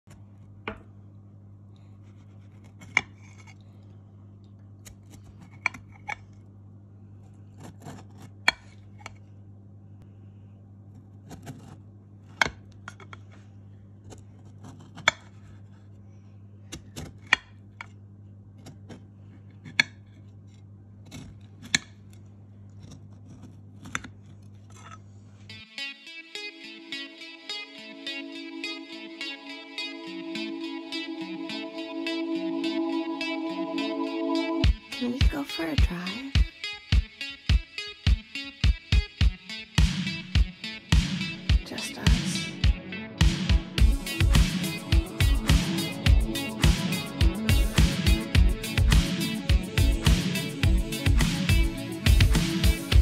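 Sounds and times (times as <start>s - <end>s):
steady low hum: 3.4s - 11.3s, 39.8s - 53.0s
knife slicing cake: 7.5s - 8.8s, 11.0s - 12.6s, 22.7s - 25.1s.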